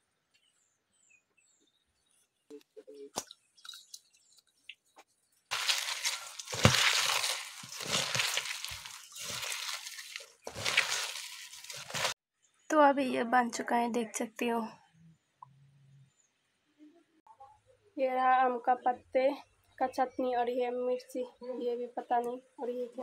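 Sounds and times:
hand kneading wet leaves in bowl: 5.5s - 12.2s.

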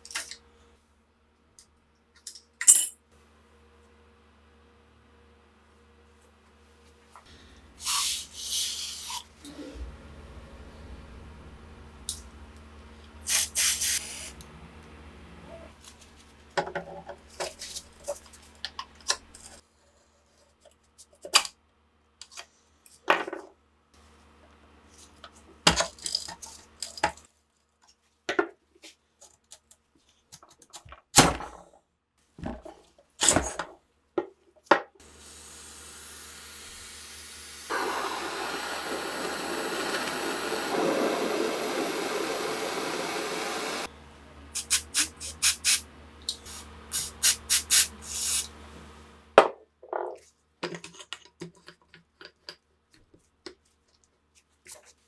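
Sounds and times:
aerosol can spraying: 7.8s - 9.2s, 13.3s - 14.4s, 35.2s - 43.9s, 44.6s - 45.8s, 46.4s - 48.5s.

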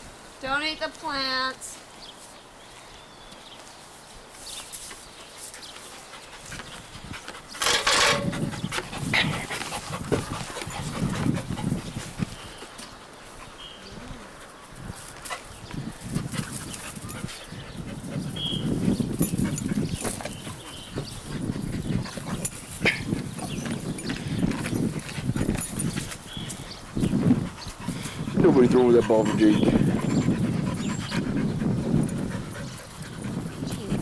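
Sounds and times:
dog panting: 8.2s - 13.6s, 15.2s - 34.0s.

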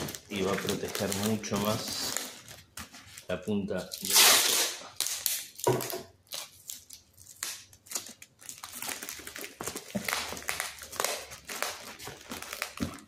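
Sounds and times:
plastic film crinkling: 0.0s - 13.0s.

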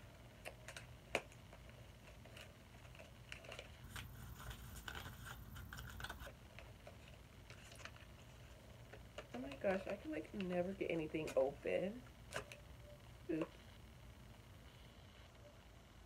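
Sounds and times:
rustling and scraping: 0.7s - 11.6s.

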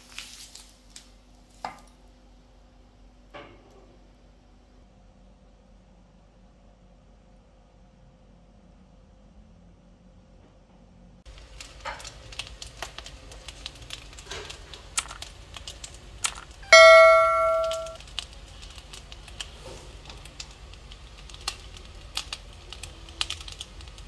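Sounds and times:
rice crackling in hot stone bowl: 0.0s - 2.2s, 11.2s - 24.0s
bell-like ding: 16.7s - 18.0s.

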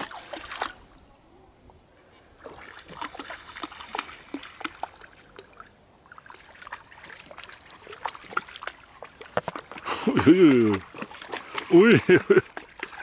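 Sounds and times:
lake water splashing: 0.0s - 1.3s, 1.9s - 13.0s.

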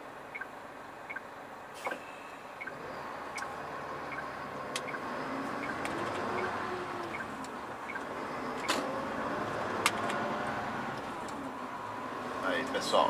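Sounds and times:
truck engine idling hum: 0.0s - 13.0s
turn signal ticking: 0.3s - 1.3s, 2.6s - 10.3s.

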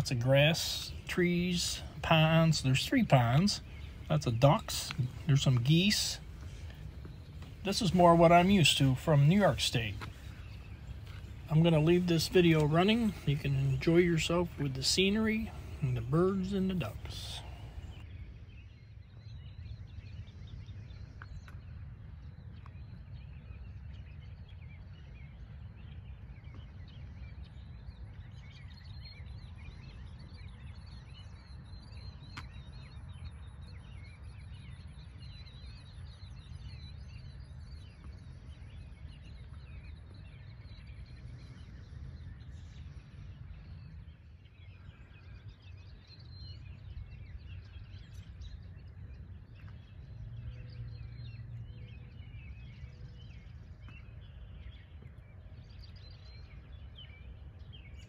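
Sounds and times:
steady low rumble: 0.0s - 29.5s.

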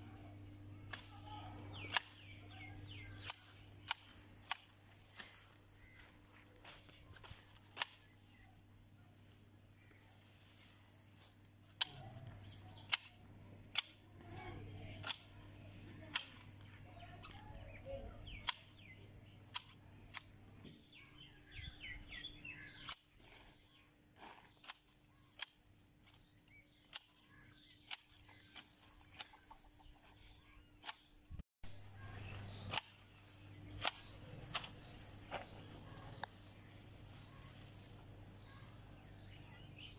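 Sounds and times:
hedge shears snipping branches: 0.8s - 8.4s, 10.1s - 20.4s, 21.8s - 23.3s, 24.2s - 29.7s, 30.8s - 31.2s, 32.0s - 38.8s.

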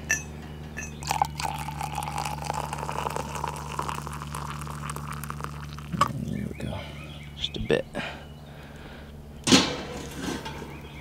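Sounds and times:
metal clink: 0.0s - 1.2s
coffee pouring into a mug: 1.0s - 6.2s.

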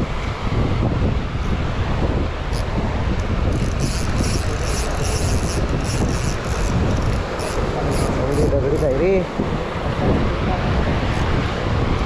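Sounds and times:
wind buffeting microphone: 0.0s - 12.0s
fishing reel cranking: 2.5s - 9.2s.

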